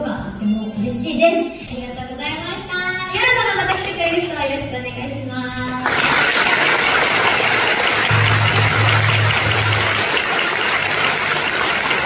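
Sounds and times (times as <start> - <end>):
low background music: 0.0 - 12.0
audience applauding: 5.8 - 12.0.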